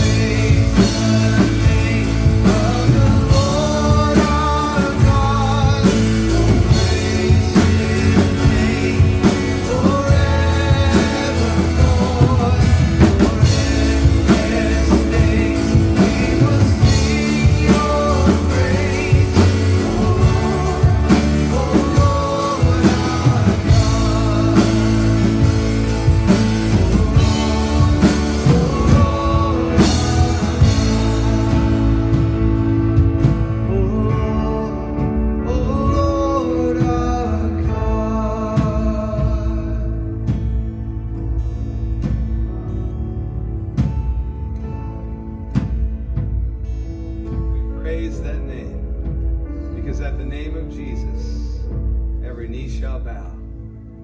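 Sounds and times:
woman singing lead: 0.0 - 39.9
worship band playing: 0.0 - 54.0.

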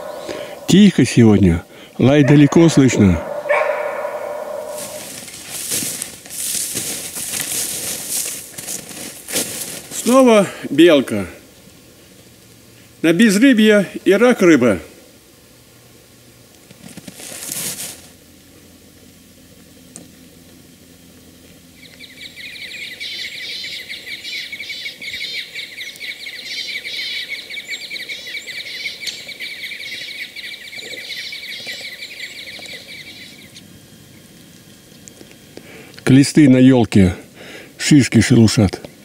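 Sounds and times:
birds chattering high chirps: 0.0 - 5.4, 21.7 - 34.3.

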